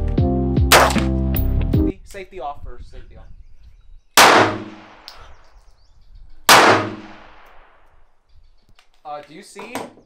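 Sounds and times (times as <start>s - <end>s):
handgun shots echoing: 0.7s - 1.1s, 4.2s - 5.3s, 6.5s - 7.8s.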